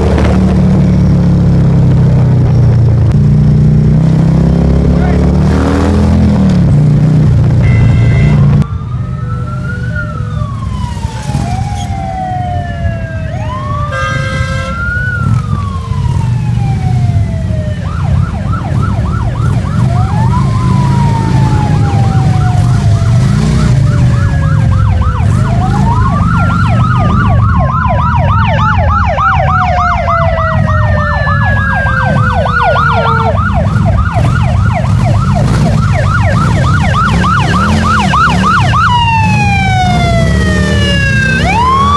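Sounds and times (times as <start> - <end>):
motorcycle engines running: 0.0 - 41.9
sirens wailing: 0.0 - 41.9
siren yelp: 7.6 - 41.9.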